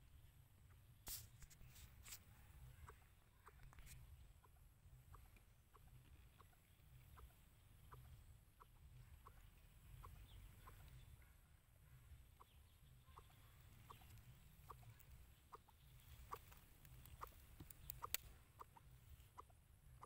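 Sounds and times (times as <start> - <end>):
soft clucking of fowl: 2.1 - 20.0
sharp clicks: 16.2 - 18.4.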